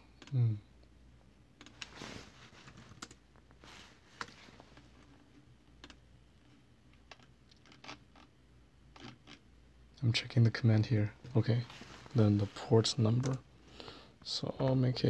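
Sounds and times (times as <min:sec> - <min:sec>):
computer keyboard keystrokes: 0:02.9 - 0:03.2, 0:13.2 - 0:13.4.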